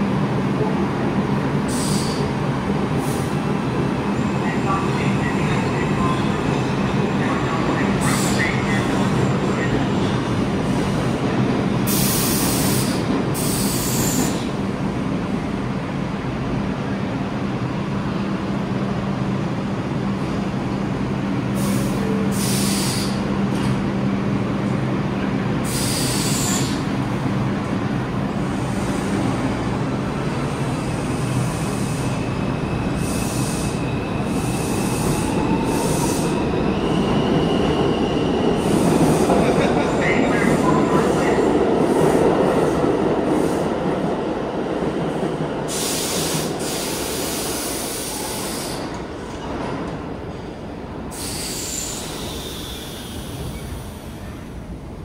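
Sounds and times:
subway train rumble: 0:00.0 - 0:55.0.

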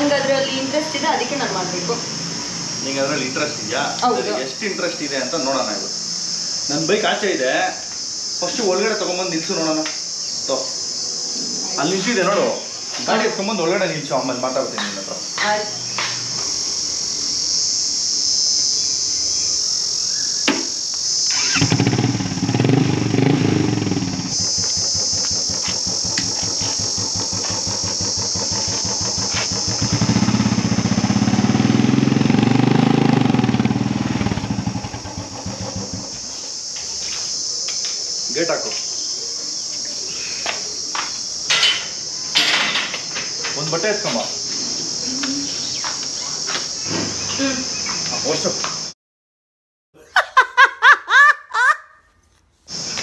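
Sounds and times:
crickets chirring: 0:00.0 - 0:49.0, 0:50.0 - 0:53.0
motorcycle engine running: 0:21.2 - 0:36.6.

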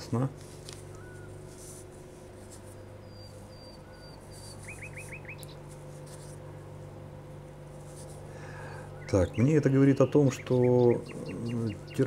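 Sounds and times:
steady low hum: 0:00.0 - 0:12.0
small bird chirping: 0:02.7 - 0:05.6, 0:09.0 - 0:12.0.

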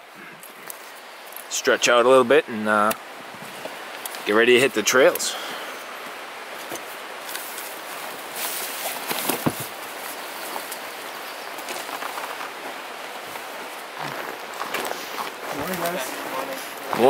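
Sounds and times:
steady outdoor hiss: 0:00.0 - 0:17.0.

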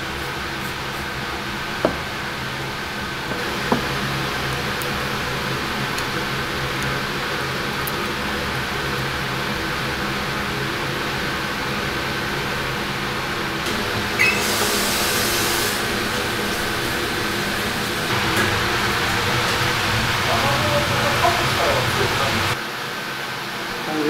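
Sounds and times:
ventilation fan humming: 0:00.0 - 0:24.0
high squeak: 0:14.2 - 0:14.6.

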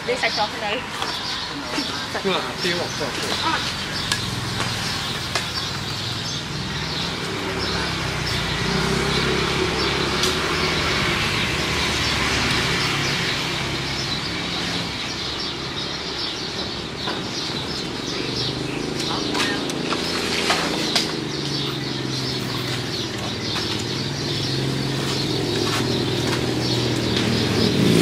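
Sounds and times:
birds chirping: 0:00.0 - 0:28.0
vehicle engine running: 0:17.5 - 0:28.0.

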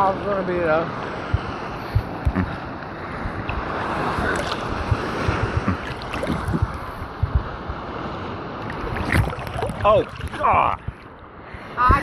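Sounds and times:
sea water sloshing and splashing: 0:01.0 - 0:11.6
wind on microphone: 0:01.2 - 0:12.0
water slapping against phone: 0:01.3 - 0:02.5, 0:04.2 - 0:07.4.

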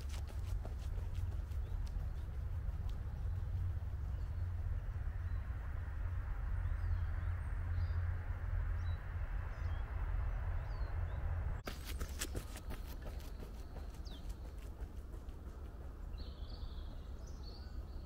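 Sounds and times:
low outdoor rumble: 0:00.0 - 0:11.6.

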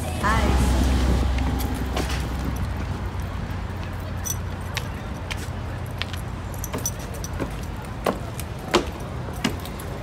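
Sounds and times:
low rumble: 0:00.0 - 0:03.8
flip-flop footsteps: 0:01.3 - 0:10.0.

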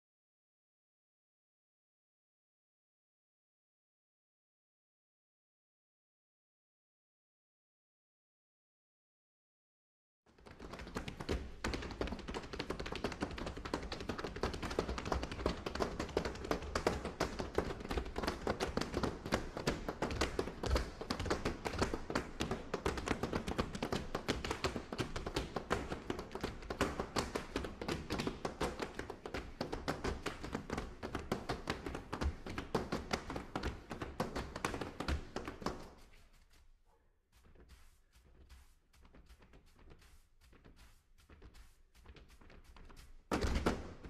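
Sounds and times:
brooms tapping and scraping floor: 0:10.4 - 0:36.6, 0:37.4 - 0:44.0.

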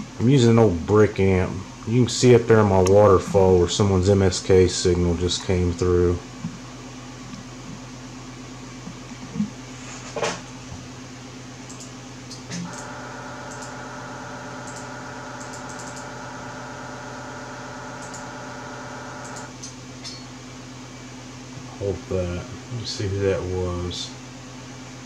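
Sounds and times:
steady buzzing multi-tone hum: 0:00.0 - 0:25.0
sharp clicks: 0:11.7 - 0:12.9, 0:13.5 - 0:13.8, 0:14.6 - 0:16.1, 0:18.0 - 0:18.4, 0:19.1 - 0:19.8.

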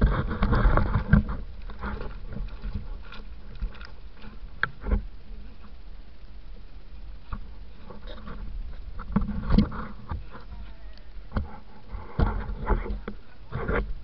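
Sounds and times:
indistinct voices: 0:10.2 - 0:12.0.

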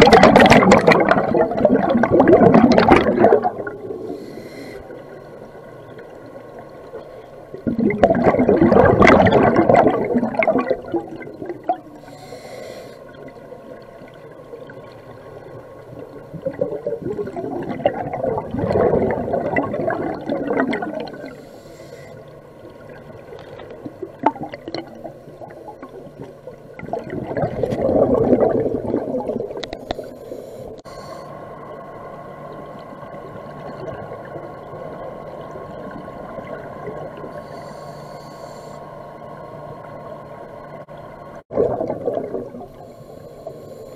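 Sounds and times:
bubbling regulator exhalations: 0:00.0 - 0:04.6, 0:07.5 - 0:12.4, 0:16.2 - 0:21.4, 0:22.8 - 0:30.1, 0:41.5 - 0:42.9
soft hissing inhalations: 0:04.0 - 0:05.6, 0:11.9 - 0:13.4, 0:21.2 - 0:22.5, 0:29.8 - 0:31.6, 0:37.3 - 0:39.1, 0:42.7 - 0:43.9.

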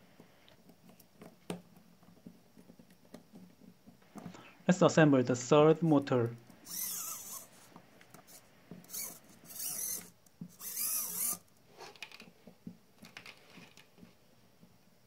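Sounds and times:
plastic parts rasping scrapes: 0:06.6 - 0:12.2
small plastic clicks and knocks: 0:11.9 - 0:14.1.

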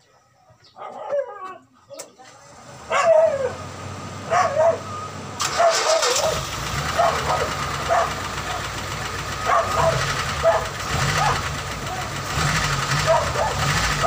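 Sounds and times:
dog barking: 0:00.8 - 0:01.6, 0:02.9 - 0:03.6, 0:04.3 - 0:08.8, 0:09.4 - 0:11.6, 0:13.0 - 0:14.0
car engine starting and idling: 0:02.2 - 0:14.0.

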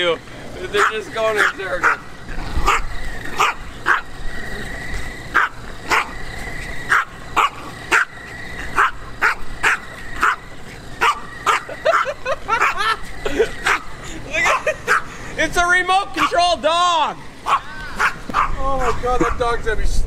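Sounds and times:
small dog barking: 0:00.8 - 0:04.2, 0:05.3 - 0:06.2, 0:06.9 - 0:12.9, 0:13.6 - 0:15.1, 0:17.4 - 0:19.5.

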